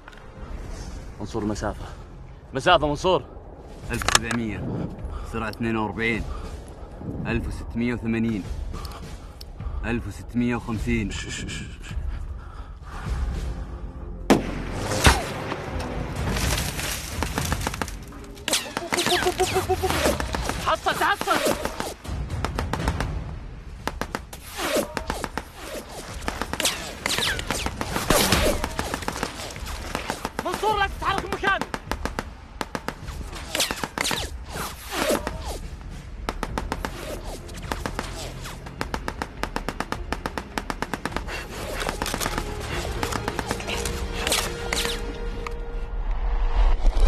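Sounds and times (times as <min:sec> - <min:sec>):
film music score: 0:00.0 - 0:47.0
gunshots and impacts: 0:16.2 - 0:35.2, 0:36.0 - 0:45.0.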